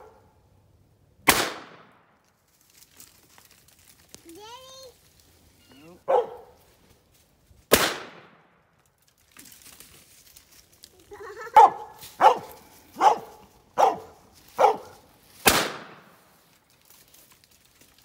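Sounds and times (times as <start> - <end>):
dog barking: 0.0 - 0.3, 6.0 - 6.6, 11.6 - 15.1
gunshot with echo: 1.3 - 2.0, 7.7 - 8.5, 15.4 - 16.2.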